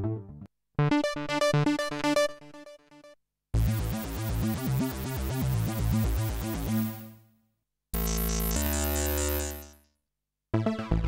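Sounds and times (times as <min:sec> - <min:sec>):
synthesizer arpeggio: 0:03.6 - 0:07.1
synthesizer held chord: 0:03.6 - 0:07.1
synthesizer bass line: 0:03.6 - 0:07.2, 0:08.0 - 0:09.8.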